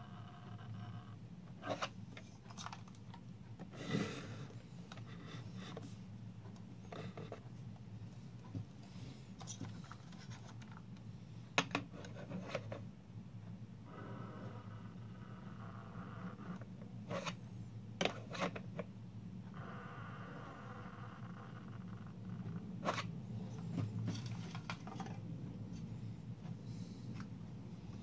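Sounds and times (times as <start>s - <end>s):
steady low hum: 0.0s - 28.0s
plastic model scraping and tapping: 9.4s - 10.9s, 11.6s - 12.9s, 17.1s - 17.4s, 18.0s - 18.9s, 22.8s - 25.2s.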